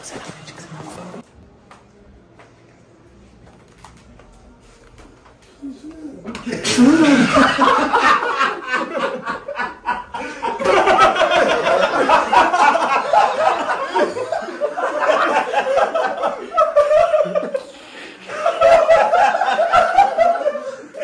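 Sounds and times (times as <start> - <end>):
men laughing: 6.2 - 21.0.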